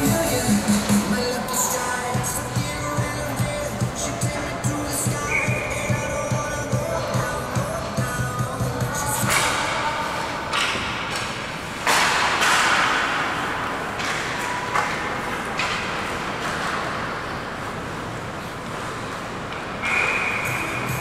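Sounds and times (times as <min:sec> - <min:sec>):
sticks striking puck: 0:09.2 - 0:09.8, 0:10.4 - 0:17.0.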